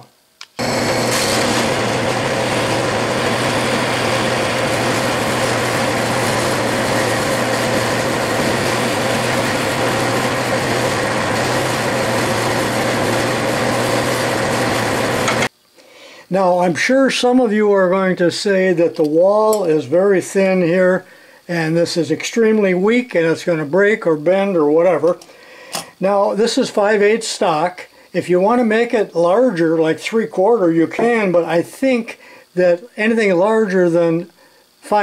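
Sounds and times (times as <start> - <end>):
metal lathe cutting: 0.6 - 15.5.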